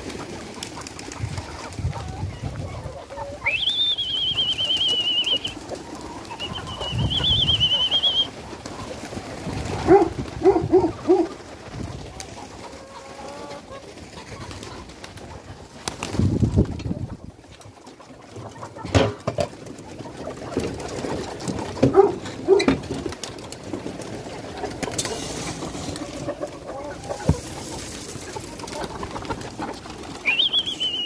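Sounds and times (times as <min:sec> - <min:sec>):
pigeons cooing: 0:00.0 - 0:08.6, 0:09.3 - 0:11.5
high wavering whistle: 0:03.4 - 0:05.6, 0:06.4 - 0:08.3, 0:30.2 - 0:31.0.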